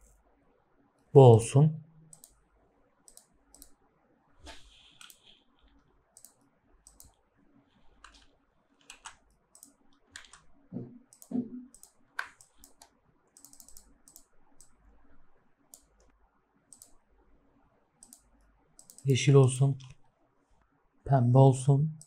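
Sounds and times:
computer mouse clicks: 0:02.1 - 0:02.4, 0:03.0 - 0:03.8, 0:04.4 - 0:07.2, 0:08.0 - 0:14.8, 0:15.7 - 0:17.0, 0:18.0 - 0:19.2
keyboard keys clicking: 0:08.0 - 0:14.7.

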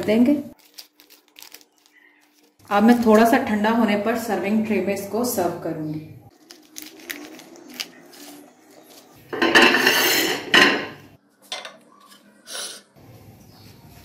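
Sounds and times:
glass dish scraping on stone: 0:09.4 - 0:11.0.

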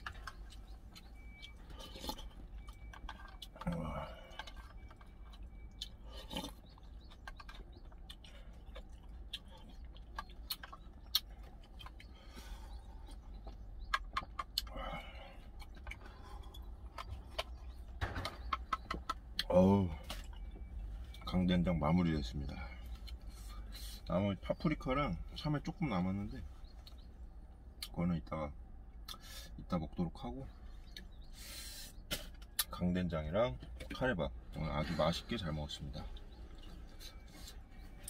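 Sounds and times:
mouth sounds of eating: 0:00.0 - 0:17.8.

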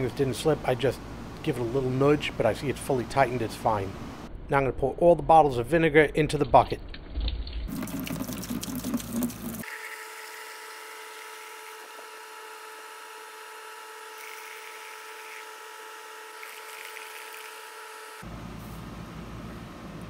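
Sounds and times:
liquid pouring into a plastic bucket: 0:07.0 - 0:09.7.

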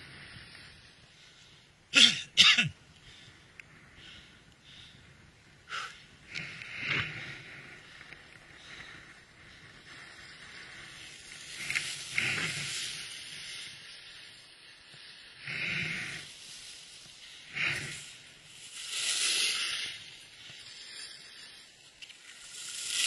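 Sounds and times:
skis scraping on snow: 0:06.4 - 0:23.0.

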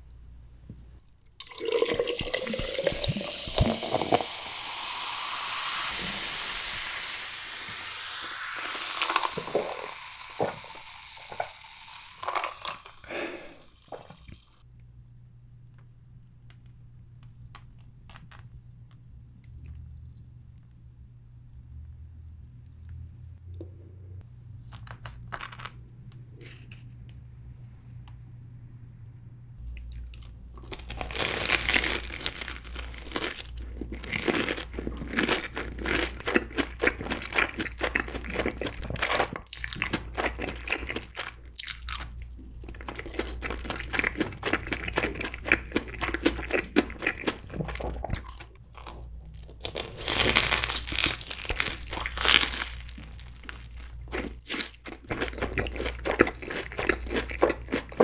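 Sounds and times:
crunching of fried batter: 0:24.6 - 0:25.9, 0:29.6 - 0:58.0.

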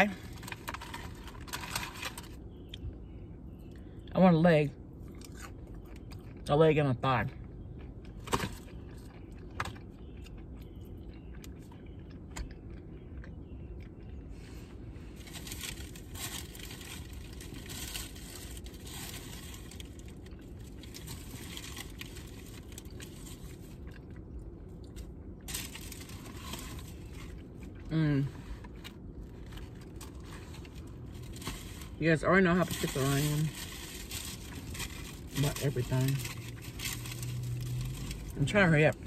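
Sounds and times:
steady low rumble: 0:00.0 - 0:39.0
paper bags rustling and crinkling: 0:15.2 - 0:23.6, 0:25.5 - 0:27.4, 0:29.3 - 0:38.3.

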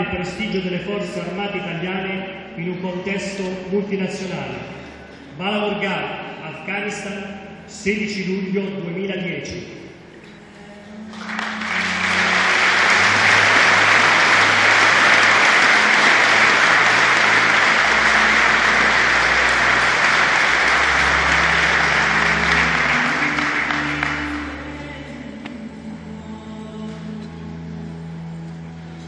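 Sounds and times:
audience applauding: 0:11.1 - 0:24.8.

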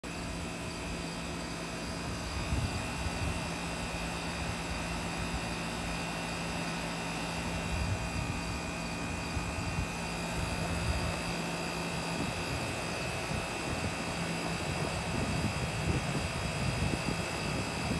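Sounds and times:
air conditioner unit humming: 0:00.0 - 0:17.9.

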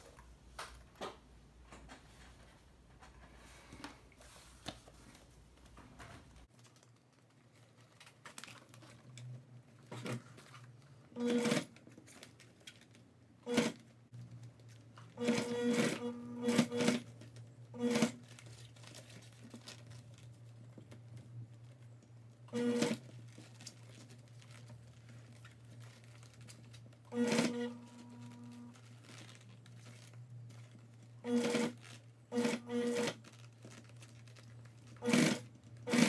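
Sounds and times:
sewing machine stitching: 0:11.2 - 0:11.8, 0:13.4 - 0:13.8, 0:15.1 - 0:17.1, 0:17.8 - 0:18.2, 0:22.5 - 0:23.1, 0:27.1 - 0:28.7, 0:31.2 - 0:33.2, 0:35.0 - 0:36.0.

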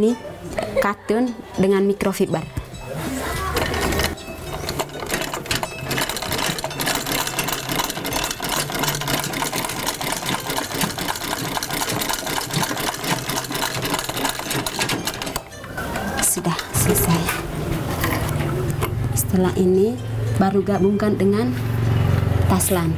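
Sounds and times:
treadle sewing machine clattering: 0:03.4 - 0:19.3.

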